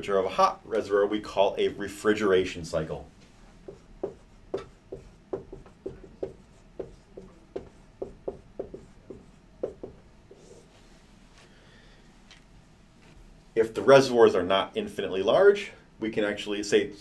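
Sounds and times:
marker writing on whiteboard: 3.5s - 10.7s.

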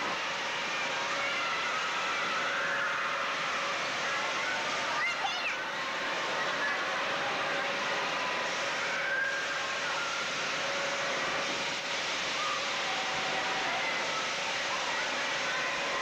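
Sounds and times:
crowd noise: 0.0s - 16.0s.

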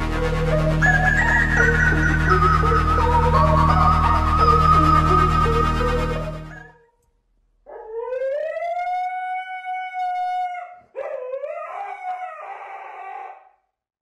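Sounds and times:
husky howling: 7.7s - 13.5s.

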